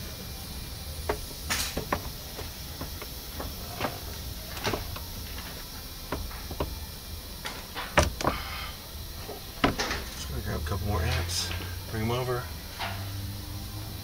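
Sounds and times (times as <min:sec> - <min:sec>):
steady low hum: 0:00.0 - 0:14.0
plastic panels clicking and knocking: 0:07.9 - 0:08.4, 0:09.6 - 0:10.0.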